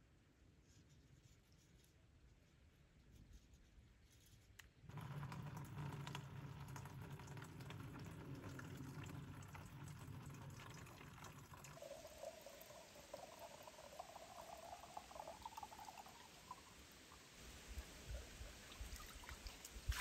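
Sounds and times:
water pouring into plastic jug: 0:04.9 - 0:17.3, 0:18.1 - 0:20.0
rising tone of filling jug: 0:04.9 - 0:20.0.

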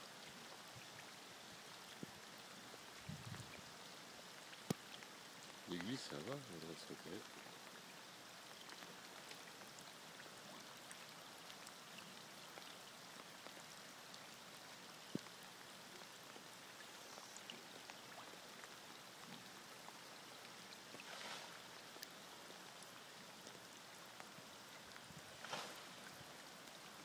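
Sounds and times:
water pattering and trickling: 0:00.0 - 0:27.0
brief hiss: 0:25.4 - 0:25.9.

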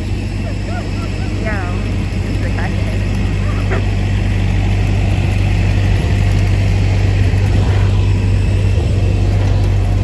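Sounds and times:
loud engine drone: 0:00.0 - 0:10.0.

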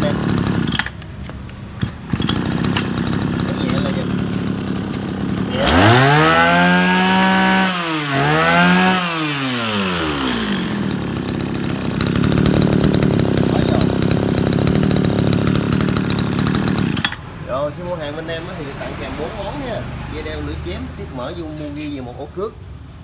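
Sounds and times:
brush cutter engine revving: 0:00.0 - 0:17.5.

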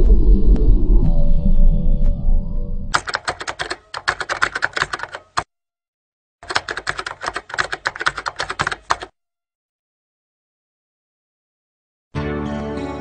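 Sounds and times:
rapid keyboard typing clicks: 0:03.0 - 0:05.5, 0:06.4 - 0:09.1.

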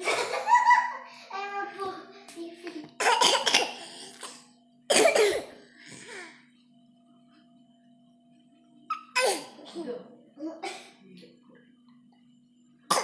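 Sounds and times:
faint steady hum: 0:00.0 - 0:13.0
person coughing: 0:03.0 - 0:05.6.

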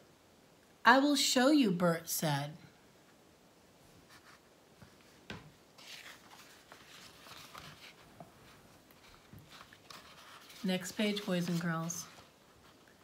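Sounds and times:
paper rustling: 0:04.0 - 0:13.0.

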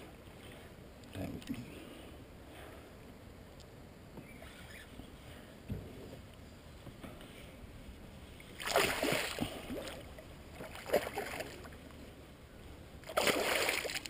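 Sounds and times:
fish splashing at the surface: 0:08.6 - 0:11.7, 0:13.0 - 0:14.0.

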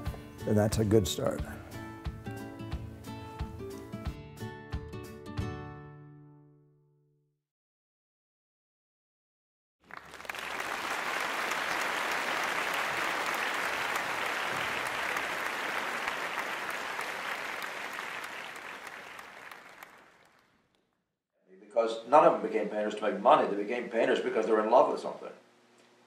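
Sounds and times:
audience applauding: 0:09.8 - 0:20.6.

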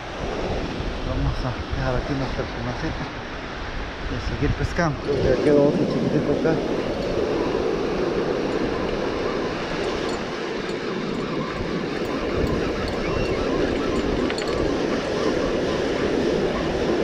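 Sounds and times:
wind buffeting microphone: 0:00.0 - 0:17.0
wind rushing: 0:03.7 - 0:17.0.

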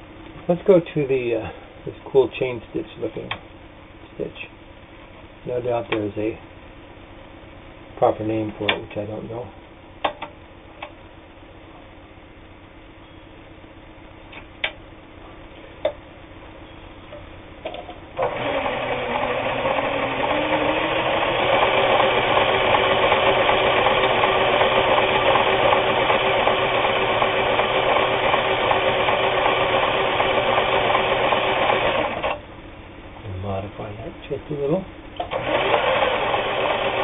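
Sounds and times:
sewing machine running: 0:18.2 - 0:32.4, 0:35.2 - 0:37.0.

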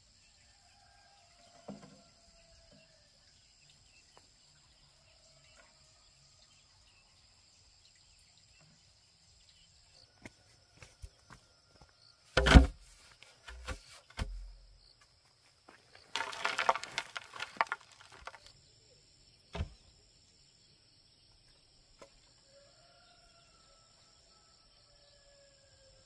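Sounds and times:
stony soil crunching and scraping: 0:10.2 - 0:18.6
pole dropping into hole thud: 0:12.4 - 0:12.8.

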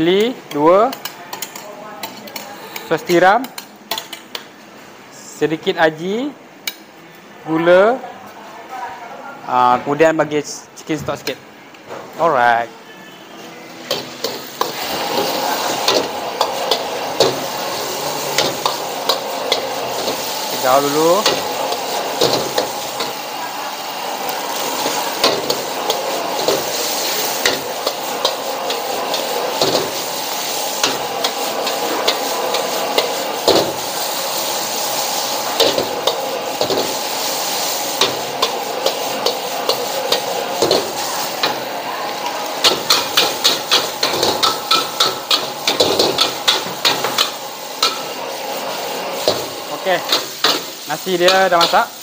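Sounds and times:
rice sizzling in a wok: 0:13.8 - 0:52.0.

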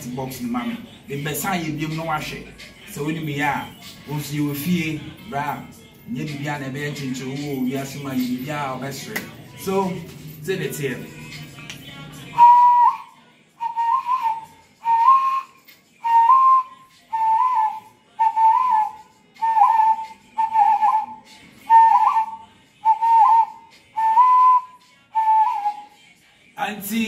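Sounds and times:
man hand whistling: 0:12.4 - 0:26.0.

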